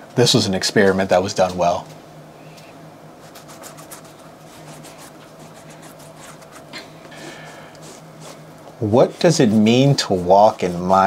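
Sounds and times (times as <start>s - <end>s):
steady low hum: 0.0s - 11.0s
scrubbing a boot: 3.3s - 6.7s, 7.8s - 11.0s.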